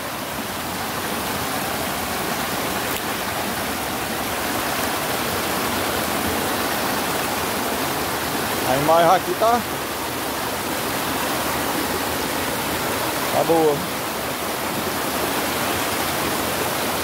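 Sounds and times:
floodwater rushing over rocks: 0.0s - 17.0s.

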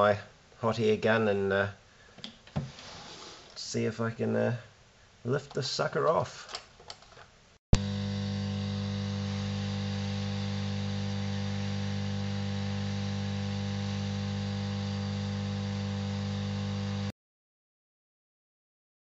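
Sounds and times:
hot air station humming and hissing: 7.8s - 17.1s.

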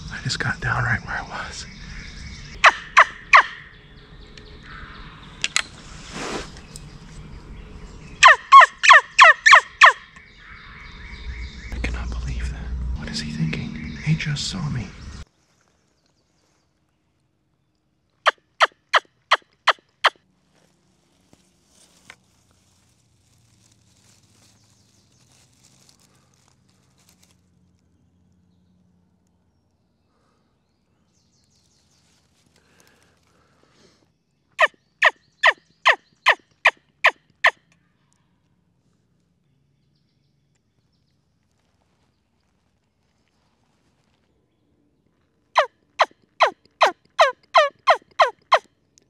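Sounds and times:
turkey call yelps: 2.6s - 3.7s, 8.2s - 10.1s, 34.6s - 36.4s, 45.6s - 48.6s
faint rustling: 20.3s - 27.8s, 41.4s - 44.4s.

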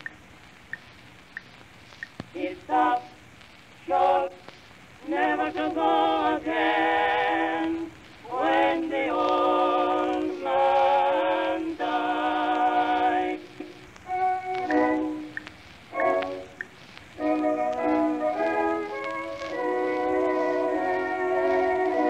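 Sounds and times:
slow melody with vibrato: 14.1s - 16.6s, 17.2s - 22.0s.

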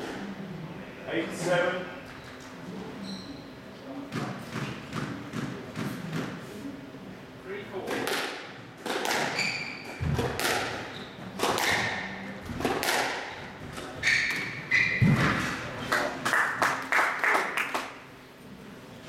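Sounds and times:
shoes squeaking on court: 2.1s - 3.6s, 9.2s - 12.2s, 13.7s - 15.6s
squash ball impacts: 4.1s - 6.4s, 7.8s - 15.7s.

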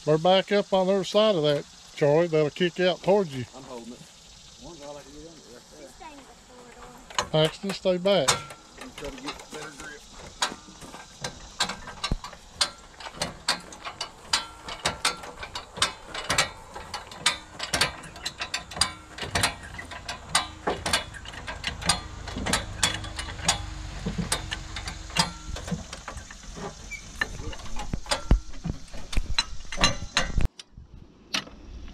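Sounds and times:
jack ratchet clicks: 7.1s - 30.7s.

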